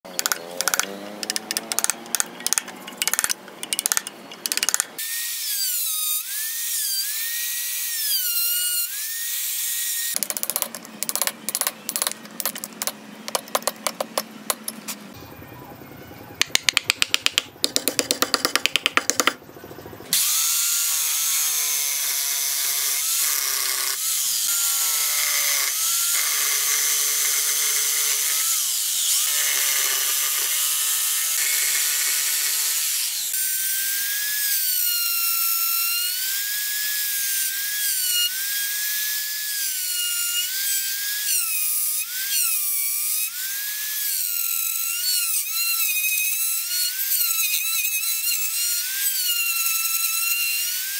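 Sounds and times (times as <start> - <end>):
jigsaw cutting wood: 0.1 - 5.2, 20.1 - 33.4
sharp hammer taps: 0.2 - 5.0, 16.4 - 19.4.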